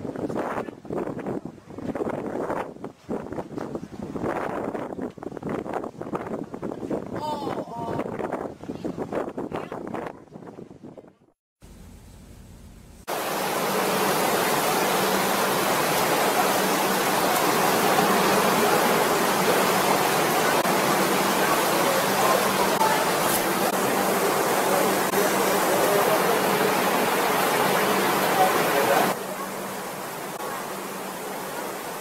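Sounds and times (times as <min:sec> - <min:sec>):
steady rushing noise: 0:12.5 - 0:32.0.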